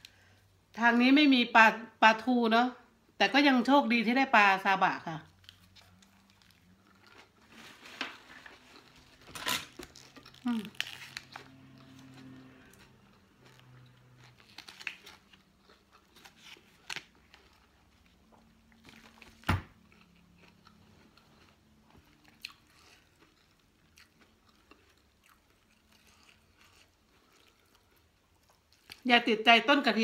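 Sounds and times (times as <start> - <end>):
person chewing and crunching food: 5.3 - 29.1.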